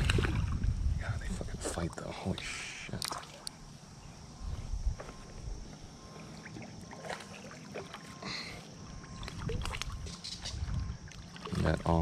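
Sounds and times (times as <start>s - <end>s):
river water splashing: 0.0s - 0.7s, 2.9s - 3.8s, 6.0s - 12.0s.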